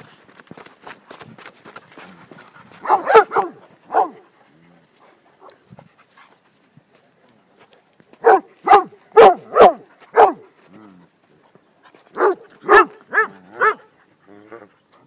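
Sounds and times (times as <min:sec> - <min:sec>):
dog barking: 0:02.8 - 0:04.2, 0:08.2 - 0:10.5, 0:12.2 - 0:13.9.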